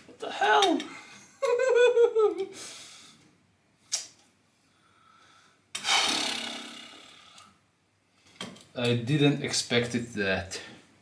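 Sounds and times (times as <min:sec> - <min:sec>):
person laughing: 0:01.2 - 0:02.6
loud noisy burst: 0:05.8 - 0:07.1.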